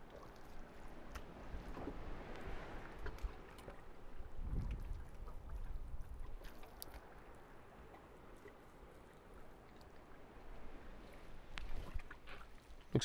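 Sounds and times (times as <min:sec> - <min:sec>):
wind rumble on microphone: 0:00.0 - 0:06.6
water lapping: 0:00.0 - 0:13.0.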